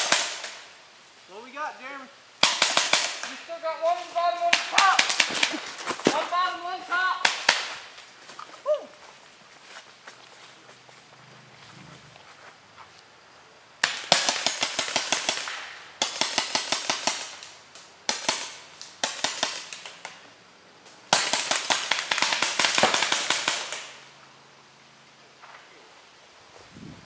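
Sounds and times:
paintball markers firing bursts: 2.4 - 3.4, 4.5 - 5.6, 13.8 - 20.2, 21.1 - 24.0.

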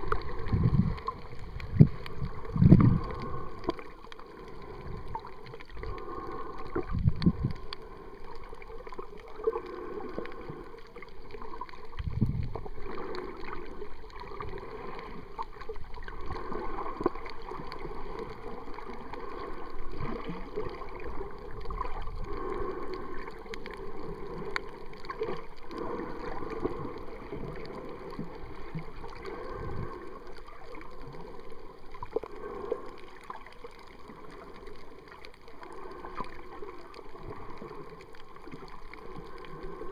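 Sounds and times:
muffled underwater sloshing: 0.0 - 39.9.

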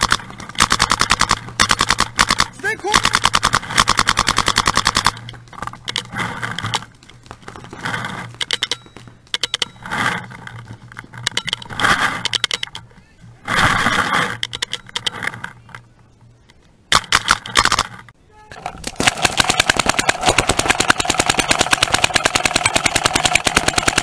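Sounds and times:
paintball markers firing: 0.0 - 6.9, 16.9 - 18.0, 18.7 - 24.0.

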